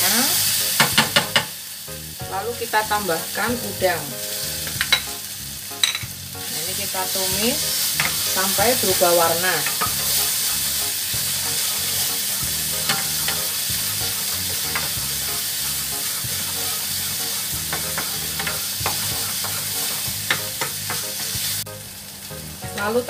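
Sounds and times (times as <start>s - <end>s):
food sizzling in hot oil: 0.0s - 23.0s
spatula tapping pan: 0.8s - 1.5s, 7.8s - 8.5s, 9.5s - 10.2s, 12.3s - 15.1s, 16.0s - 21.5s
spatula scraping pan: 6.8s - 21.6s.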